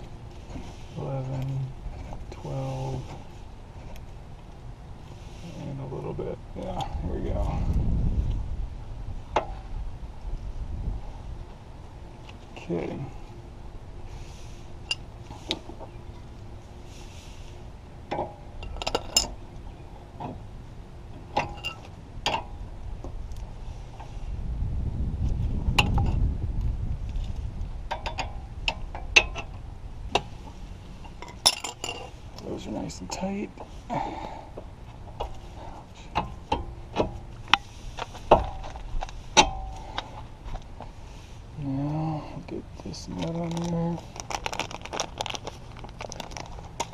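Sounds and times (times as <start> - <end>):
metal wrenches clinking: 18.2 - 19.4, 21.4 - 22.5, 31.0 - 32.1.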